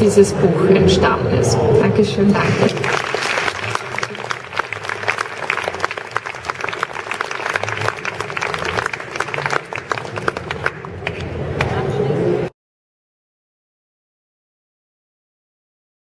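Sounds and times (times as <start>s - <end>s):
audience applauding: 2.4s - 11.7s.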